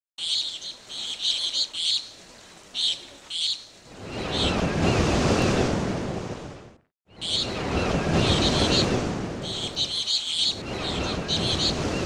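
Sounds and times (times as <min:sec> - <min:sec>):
small birds chirping: 0:00.2 - 0:04.6, 0:07.1 - 0:12.0
ocean surf rushing: 0:03.8 - 0:12.0.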